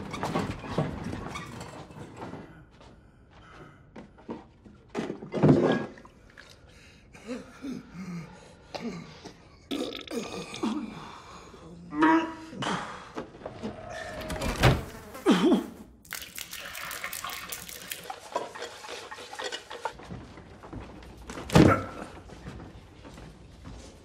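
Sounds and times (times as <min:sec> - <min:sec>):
liquid sloshing and splashing: 0:16.0 - 0:20.0.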